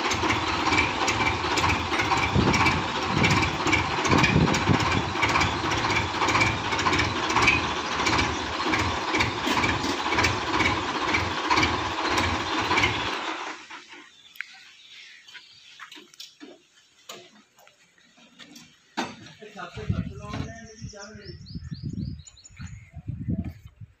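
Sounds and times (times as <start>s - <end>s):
tractor diesel engine idling: 0.0s - 14.1s.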